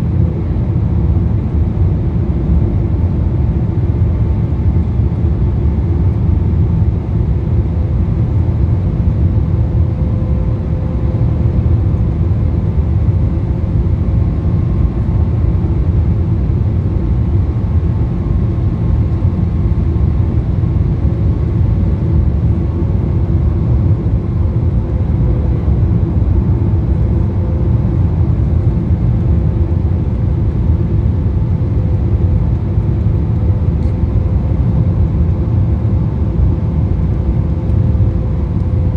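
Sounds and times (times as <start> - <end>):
airflow and engine rumble: 0.0 - 38.9.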